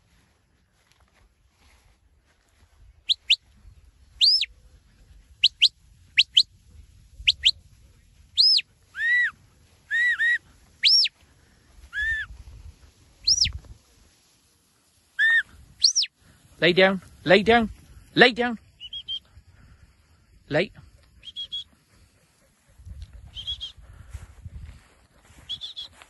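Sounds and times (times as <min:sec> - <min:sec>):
shepherd's whistle commands: 0:04.2 - 0:04.5, 0:05.4 - 0:06.5, 0:07.3 - 0:07.6, 0:08.4 - 0:09.3, 0:09.9 - 0:11.1, 0:11.9 - 0:12.3, 0:13.2 - 0:13.5, 0:15.2 - 0:16.1, 0:18.8 - 0:19.3, 0:21.2 - 0:21.7, 0:23.3 - 0:23.9, 0:25.4 - 0:26.0.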